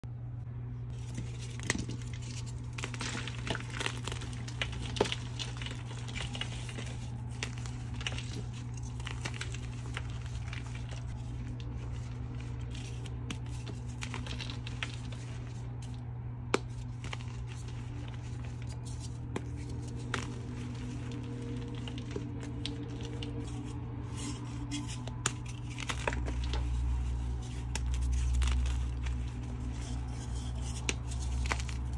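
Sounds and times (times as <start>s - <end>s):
chalk crunching and crackling: 0.9s - 16.0s, 16.6s - 31.9s
chalk pieces snapping: 16.5s - 31.9s.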